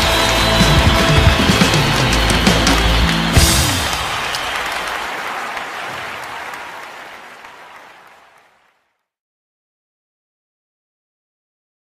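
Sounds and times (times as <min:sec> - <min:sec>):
applause: 0:00.0 - 0:09.2.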